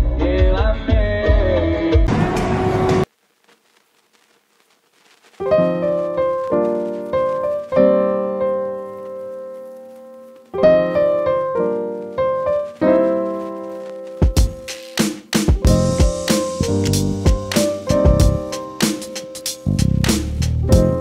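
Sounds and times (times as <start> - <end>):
piano chords: 5.5 - 14.8, 15.5 - 21.0.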